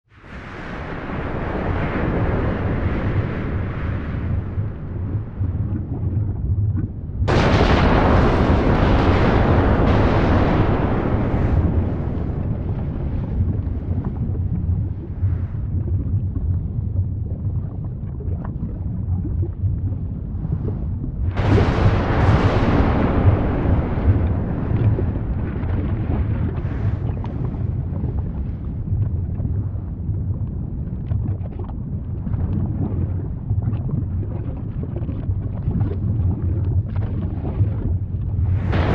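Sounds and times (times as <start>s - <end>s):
volcanic blast: 0.1s - 17.0s, 20.6s - 30.4s, 37.3s - 38.9s
volcano rumbling roar: 0.2s - 30.9s, 35.8s - 38.9s.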